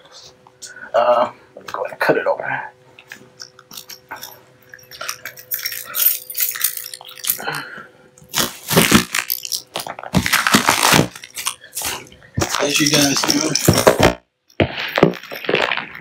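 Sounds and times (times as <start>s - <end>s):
blade slitting packing tape: 8.3s - 11.9s
cardboard scraping and crunching: 10.1s - 11.3s.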